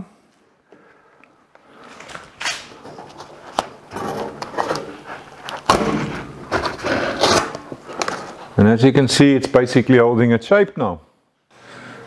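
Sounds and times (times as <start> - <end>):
paper crinkling: 1.7 - 8.6
masking tape peeling: 1.9 - 8.5.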